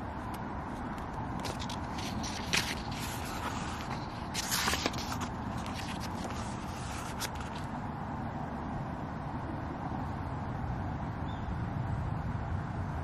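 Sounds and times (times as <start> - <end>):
low outdoor background noise: 0.0 - 13.0
book pages turning: 0.7 - 7.8.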